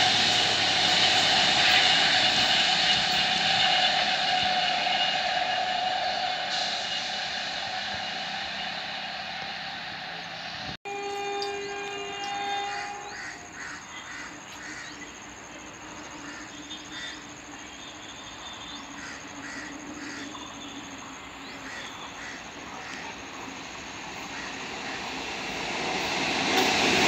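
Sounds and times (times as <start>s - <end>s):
train rumble: 0.0s - 27.0s
train horn blast: 10.6s - 23.2s
crows cawing: 12.7s - 15.0s, 16.2s - 17.2s, 19.0s - 20.4s, 21.6s - 23.2s.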